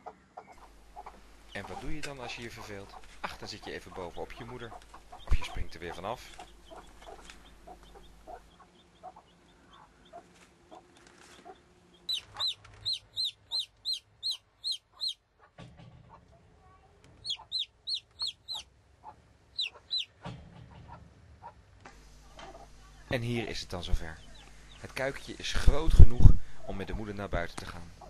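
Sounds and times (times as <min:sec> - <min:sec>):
chick peeping: 0:00.0 - 0:15.5, 0:17.2 - 0:21.6, 0:22.2 - 0:27.8
hen clucking softly: 0:00.0 - 0:15.6, 0:17.2 - 0:21.6, 0:22.3 - 0:23.0.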